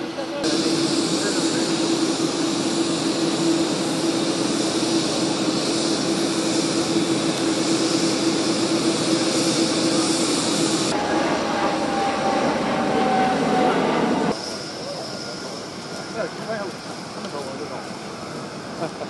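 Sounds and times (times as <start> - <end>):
jet aircraft engine rush: 0.0 - 19.0
steady hum: 0.3 - 14.4
high hiss: 0.4 - 11.9.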